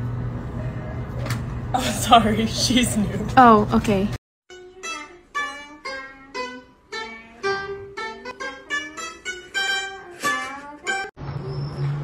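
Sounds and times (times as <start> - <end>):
plucked lute melody: 4.5 - 11.1.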